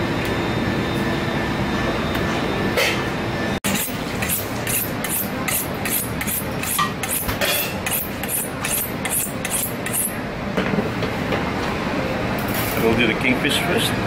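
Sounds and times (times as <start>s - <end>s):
low kitchen hum: 0.0s - 14.0s
knife scraping on sharpening steel: 3.7s - 10.2s.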